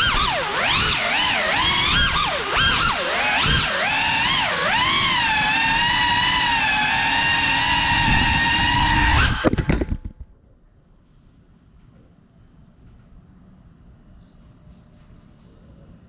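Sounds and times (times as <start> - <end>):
drone motors whining: 0.0 - 10.2.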